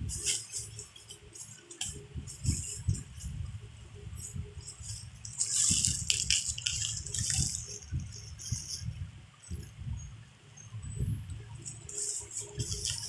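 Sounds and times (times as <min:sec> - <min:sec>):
bubble wrap rustling and crackling: 0:00.0 - 0:09.0, 0:11.6 - 0:13.0.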